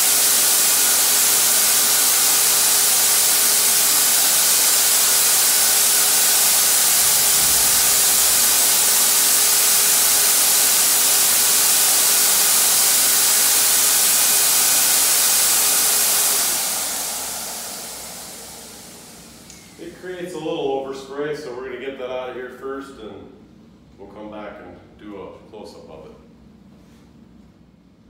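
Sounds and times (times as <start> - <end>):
rush of air from spray gun: 0.0 - 19.8
faint motor hum: 0.0 - 28.0.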